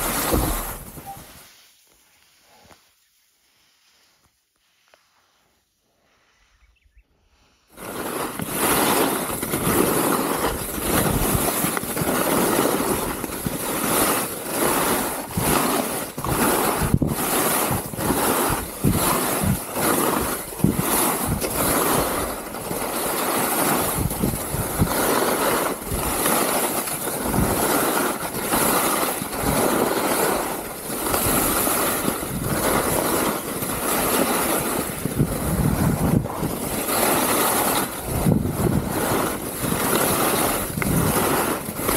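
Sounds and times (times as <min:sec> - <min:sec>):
skis scraping on snow: 0:00.0 - 0:06.5, 0:07.4 - 0:41.9
wind buffeting microphone: 0:07.8 - 0:13.8, 0:14.8 - 0:22.8, 0:23.8 - 0:25.2, 0:27.2 - 0:27.9, 0:30.8 - 0:41.9.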